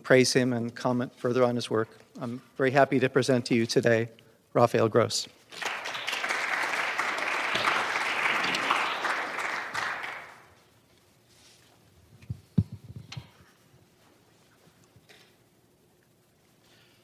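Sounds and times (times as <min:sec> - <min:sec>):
audience applause: 0:05.5 - 0:10.6
microphone being handled: 0:11.5 - 0:14.8.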